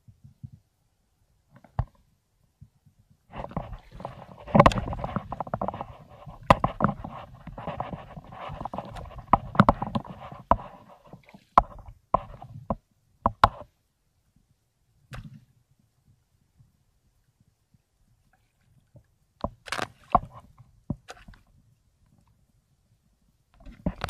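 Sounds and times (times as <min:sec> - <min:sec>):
seawater splashing and sloshing: 0:03.3 - 0:12.6
sharp knocks and clicks: 0:03.3 - 0:13.7.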